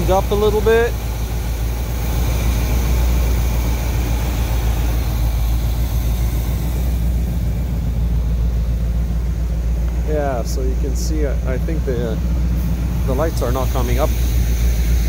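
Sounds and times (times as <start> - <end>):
car engine idling: 0.0 - 15.0.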